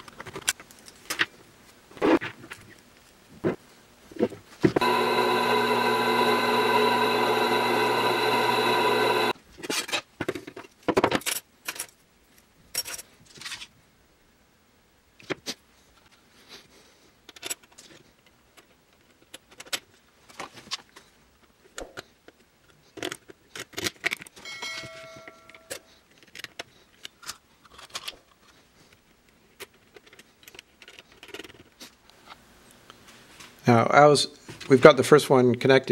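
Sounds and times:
electric drill running: 4.8s - 9.4s
ringing metal ping: 24.4s - 25.7s.

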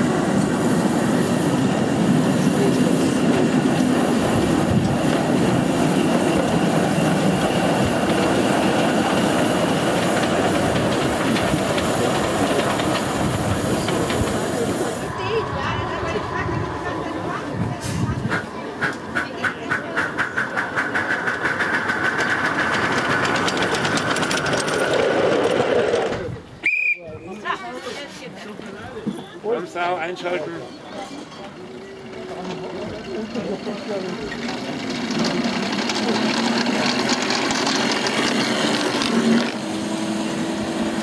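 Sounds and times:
steam locomotive chuffing: 0.0s - 26.2s, 30.2s - 41.0s
train clicking and rattling on track: 0.0s - 26.5s, 27.5s - 41.0s
steady high tone: 14.8s - 19.1s
miniature train motor hum: 32.0s - 40.2s.

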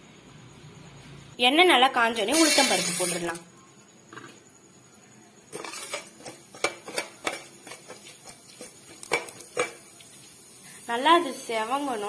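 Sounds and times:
metal spoon scraping steel pan: 5.5s - 9.8s.

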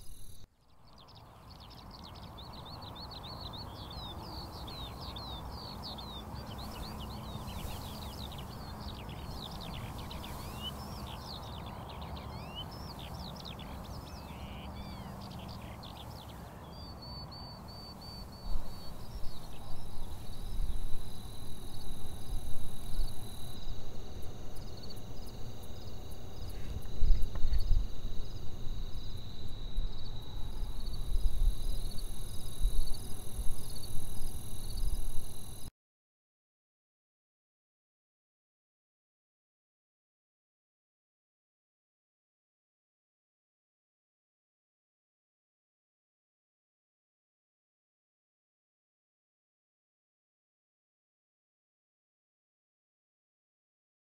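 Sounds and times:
high insect trill: 0.0s - 0.5s, 3.9s - 16.4s, 17.4s - 35.7s
bird chirping calls: 0.0s - 23.6s.

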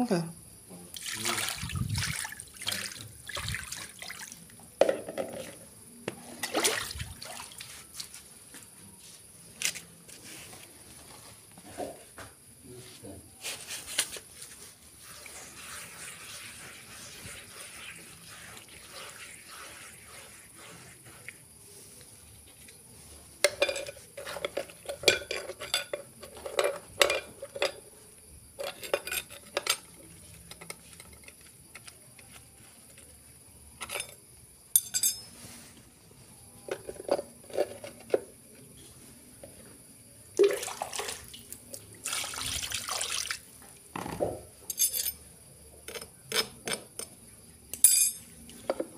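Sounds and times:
water sloshing and scrubbing: 1.0s - 4.5s, 6.2s - 8.2s, 40.4s - 43.5s.

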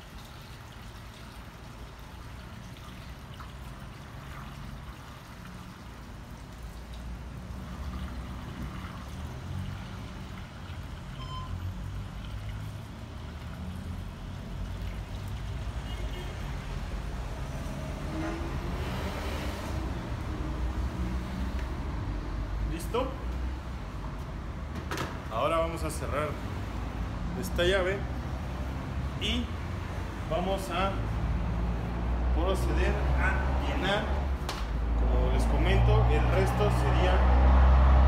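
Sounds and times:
liquid pouring through funnel: 0.0s - 16.6s.

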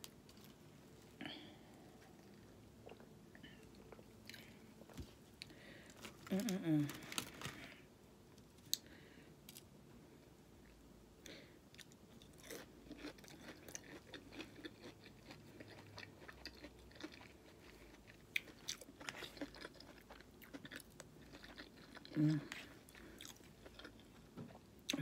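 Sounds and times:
chewing and crunching food: 1.4s - 7.8s, 11.7s - 25.0s.

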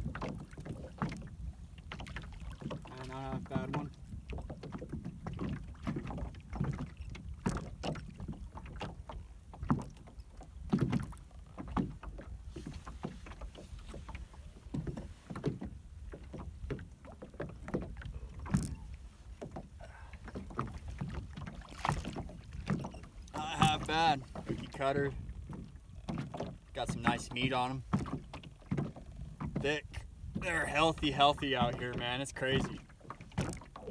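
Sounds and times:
knocks and splashes: 0.0s - 33.9s
water slapping boat hull: 0.0s - 33.9s.

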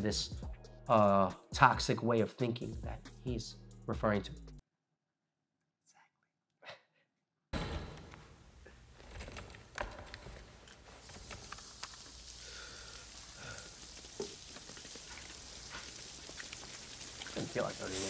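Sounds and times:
rain patter: 9.0s - 18.0s.

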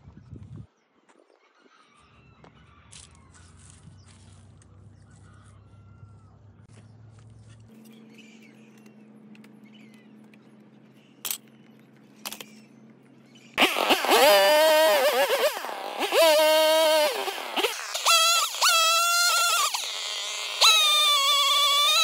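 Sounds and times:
small birds chirping: 0.1s - 14.2s.

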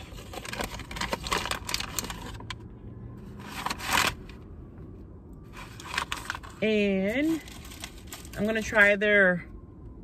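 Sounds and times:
paper wrapper crinkling: 0.0s - 2.5s, 3.4s - 4.4s, 5.5s - 8.8s.

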